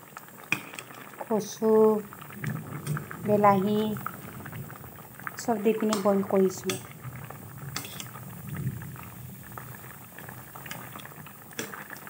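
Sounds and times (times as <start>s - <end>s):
vegetables boiling in a wok: 0.0s - 12.0s.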